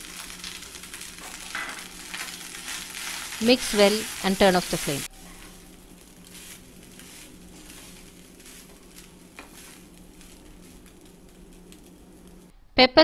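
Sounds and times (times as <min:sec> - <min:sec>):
steady low hum: 0:00.0 - 0:13.0
spatula scraping rice in pan: 0:00.9 - 0:04.2, 0:05.2 - 0:11.2.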